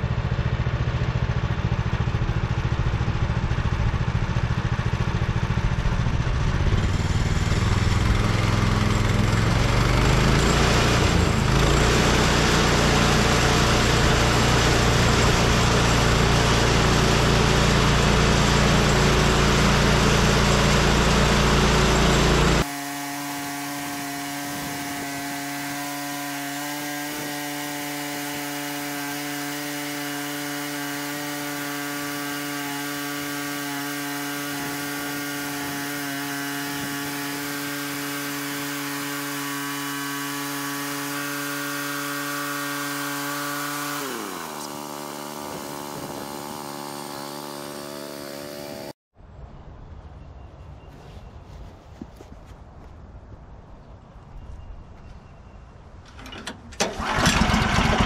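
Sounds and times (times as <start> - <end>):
gas engine running: 0.0 - 49.0, 56.8 - 58.0
band sawmill cutting log: 2.6 - 49.0, 56.8 - 58.0.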